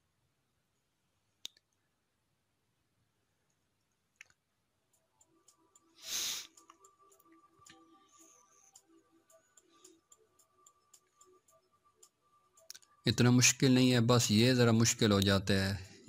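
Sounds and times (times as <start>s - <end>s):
soft background music: 4.8s - 16.0s
loud hiss or whoosh: 6.0s - 6.5s.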